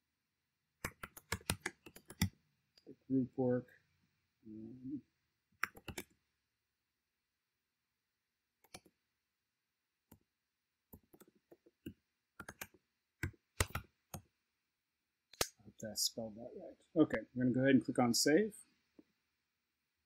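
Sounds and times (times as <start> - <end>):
keyboard typing clicks: 0.8 - 2.4, 5.6 - 6.2, 8.6 - 8.9, 10.9 - 14.3.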